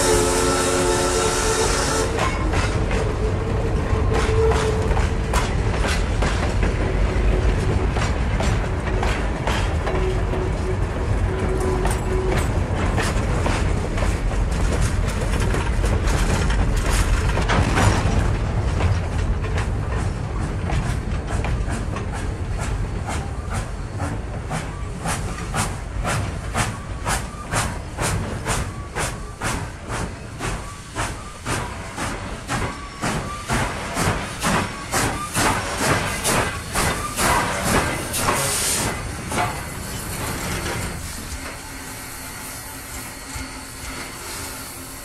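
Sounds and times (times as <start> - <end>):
steam hissing: 0.0 - 3.3, 21.3 - 45.0
steam locomotive chuffing: 0.0 - 45.0.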